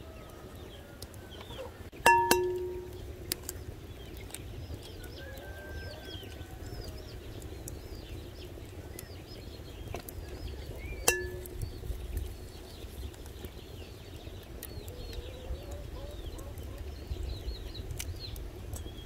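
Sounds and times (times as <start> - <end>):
small birds chirping: 0.0 - 19.0
egg rapped on glass bowl: 2.1 - 3.0, 11.1 - 11.6.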